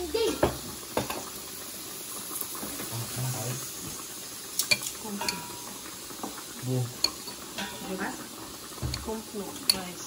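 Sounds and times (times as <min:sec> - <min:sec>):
steady hiss: 0:00.0 - 0:10.0.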